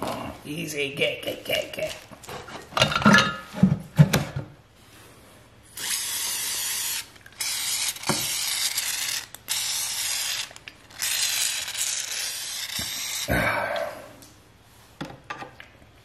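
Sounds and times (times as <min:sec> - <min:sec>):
aerosol can hissing: 0:06.0 - 0:13.3.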